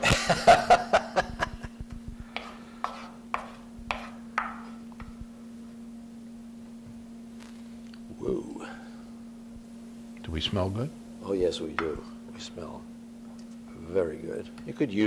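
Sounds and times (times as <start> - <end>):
steady low hum: 0.0 - 15.0
wooden spoon knocking on skillet: 2.3 - 5.2, 11.7 - 12.0.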